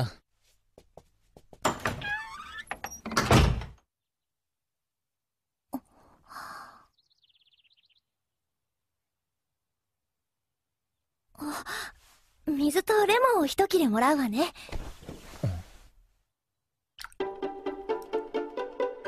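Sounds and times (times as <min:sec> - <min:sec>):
door shutting with heavy thud: 0:01.6 - 0:03.8
wooden door creaking: 0:01.6 - 0:03.8.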